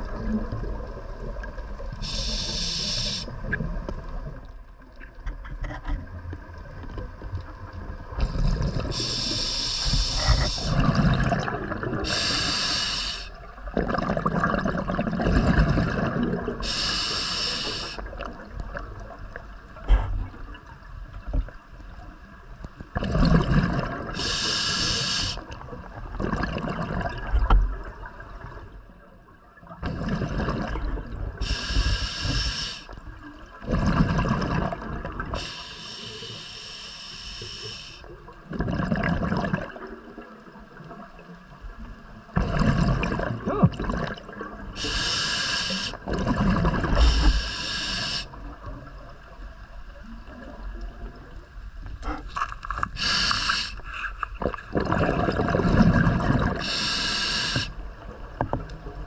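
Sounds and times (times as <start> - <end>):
exhaled bubbles gurgling: 0.0 - 35.7, 38.0 - 59.0
regulator hiss on inhale: 2.0 - 3.5, 8.2 - 10.9, 12.0 - 13.4, 16.6 - 18.1, 24.2 - 25.6, 31.4 - 33.0, 35.3 - 38.2, 44.8 - 46.0, 46.9 - 48.5, 52.8 - 54.4, 56.6 - 57.8.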